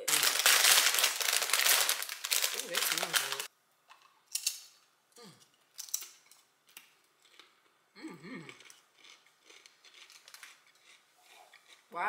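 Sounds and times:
person humming mmm: 0:05.2 - 0:05.5, 0:08.0 - 0:08.7
chewing crisp chip: 0:08.5 - 0:11.9.

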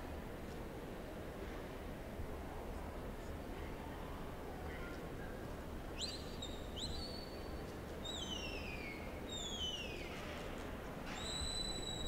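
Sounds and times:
herding whistle: 0:11.2 - 0:12.0.

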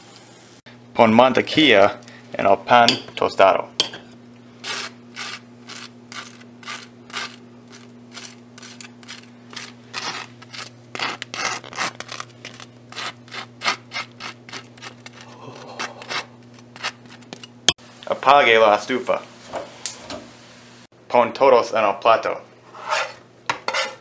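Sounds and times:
knife scraping butter on toast: 0:04.6 - 0:17.6.

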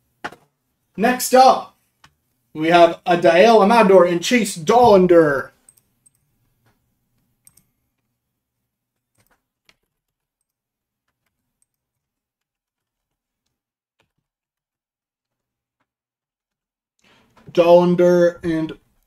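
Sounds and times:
keyboard clicks: 0:05.6 - 0:08.1.

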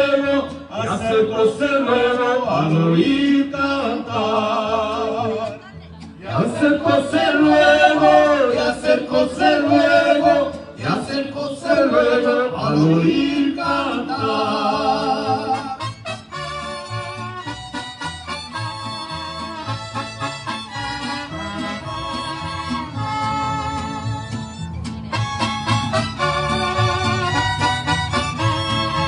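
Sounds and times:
men singing in vibrato: 0:00.0 - 0:05.5, 0:06.2 - 0:15.8
mariachi band playing: 0:00.0 - 0:29.0.

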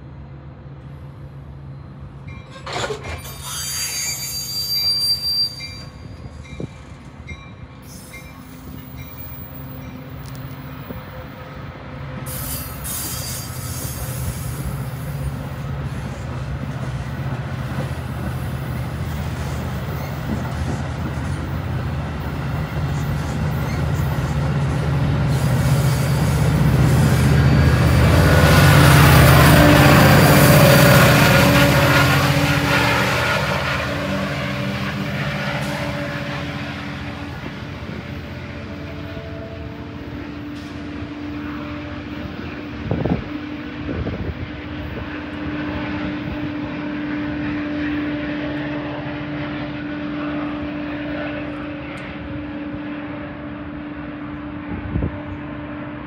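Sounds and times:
train engine rumble: 0:00.0 - 0:56.0
high squeal: 0:02.5 - 0:06.2, 0:12.3 - 0:14.5.

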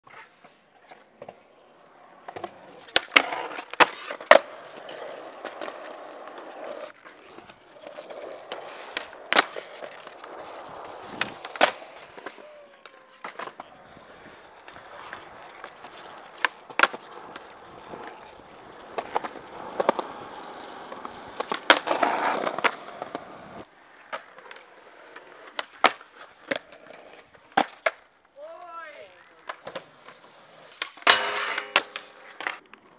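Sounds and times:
skateboard wheels rolling on concrete: 0:00.0 - 0:32.9
skateboard clacks: 0:02.2 - 0:28.6, 0:29.4 - 0:32.9.

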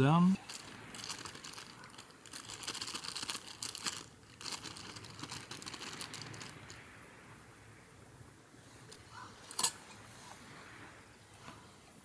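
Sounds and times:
food packaging crinkling: 0:00.4 - 0:06.8.

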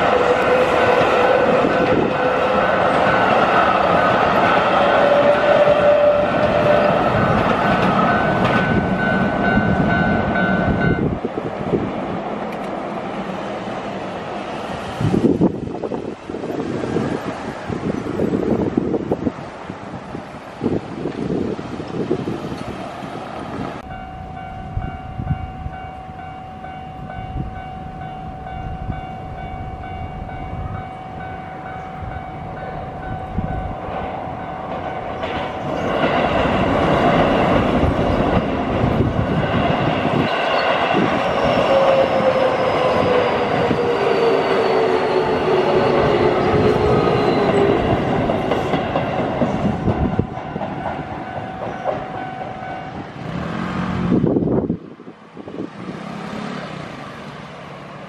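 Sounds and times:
level crossing warning bells: 0:00.0 - 0:11.3, 0:23.8 - 0:36.1, 0:49.5 - 0:53.3
road vehicle passing: 0:00.0 - 0:18.6, 0:52.4 - 0:54.6, 0:55.3 - 0:58.0
falling whine of train: 0:00.0 - 0:58.0
train wheels on rails: 0:00.0 - 0:58.0.

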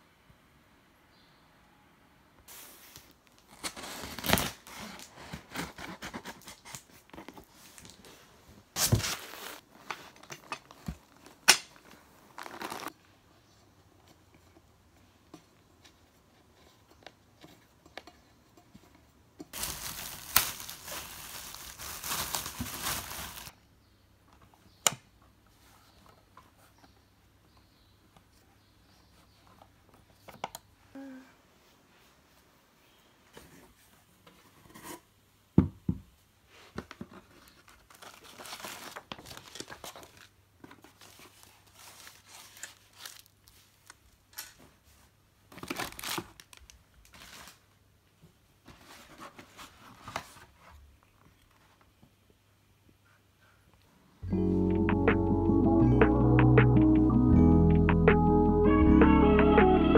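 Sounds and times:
plastic wrap crinkling and tearing: 0:03.2 - 0:08.0, 0:08.8 - 0:13.0, 0:19.6 - 0:23.5, 0:37.4 - 0:44.5, 0:45.5 - 0:47.7.

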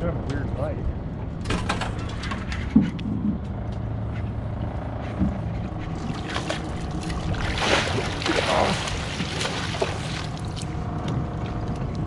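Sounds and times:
boat motor running: 0:03.2 - 0:12.0
fish splashing at surface: 0:06.0 - 0:10.7.

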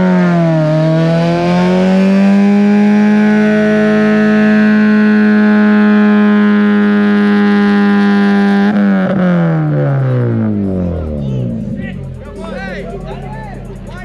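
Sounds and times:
engine at high revs: 0:00.0 - 0:14.0.

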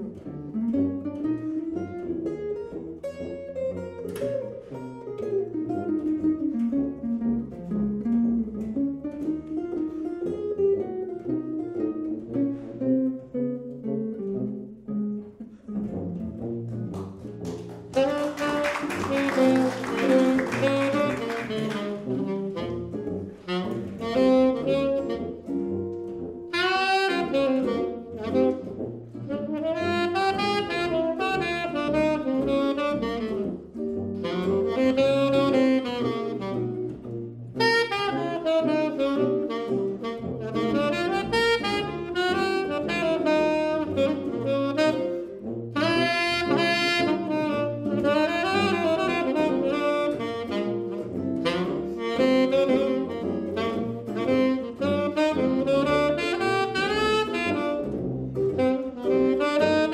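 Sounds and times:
saxophone: 0:00.0 - 0:59.9
tuba bass line: 0:00.0 - 0:59.9.

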